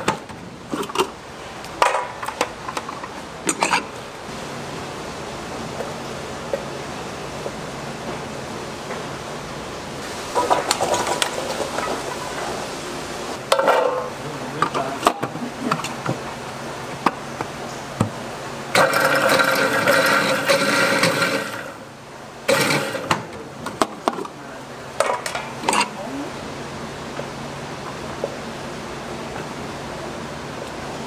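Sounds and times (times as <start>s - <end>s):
food processor motor running: 18.8s - 21.8s, 22.5s - 23.1s.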